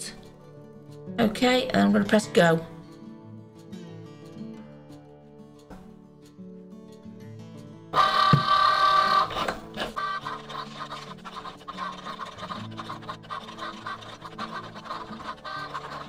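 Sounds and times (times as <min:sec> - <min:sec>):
cutting machine motors whirring: 0:08.0 - 0:16.0.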